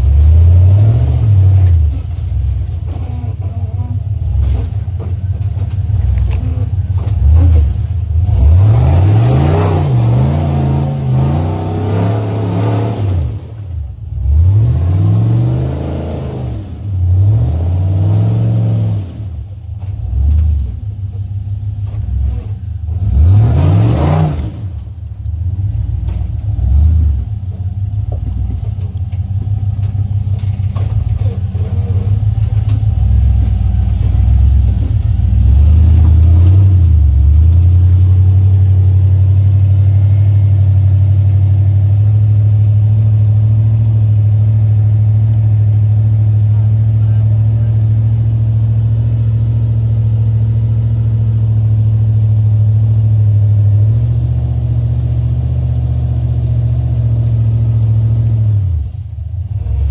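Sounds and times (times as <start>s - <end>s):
engine revving under load: 0.0s - 20.9s, 22.0s - 27.4s, 29.4s - 59.9s.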